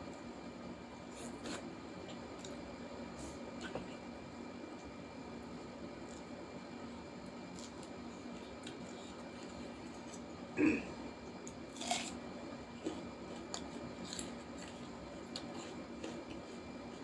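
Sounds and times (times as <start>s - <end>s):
faint steady hum: 0.0s - 17.0s
crunching bite and chewing: 7.5s - 7.9s, 11.5s - 12.2s, 12.8s - 16.5s.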